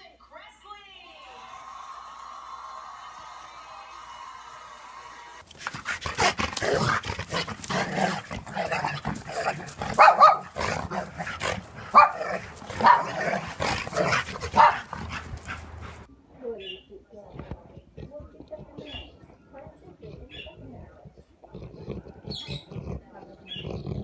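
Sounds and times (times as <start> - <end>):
dog barking: 6.1 - 15.3.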